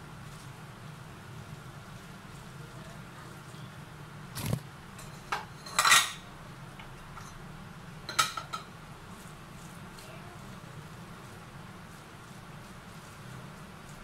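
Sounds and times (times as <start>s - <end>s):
spatula stirring noodles in pan: 8.9s - 14.0s.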